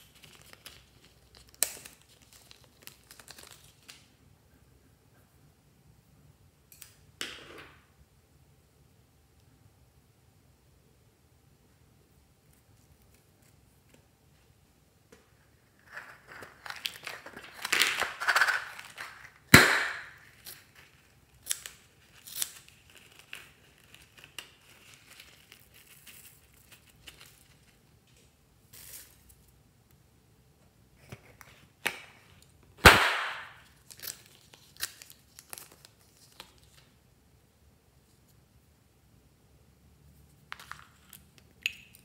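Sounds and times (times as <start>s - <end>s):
confetti crinkling and rustling: 15.8s - 27.8s
balloon rubber snapping: 32.8s - 33.6s.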